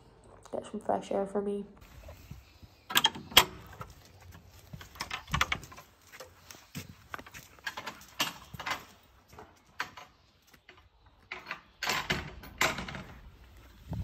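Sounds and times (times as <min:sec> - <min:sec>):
footsteps on paving: 0:05.8 - 0:07.6.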